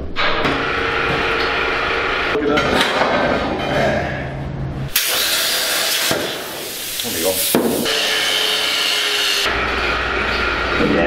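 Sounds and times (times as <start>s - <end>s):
plasma cutter hissing: 4.9s - 9.5s
angle grinder on steel: 7.4s - 10.9s.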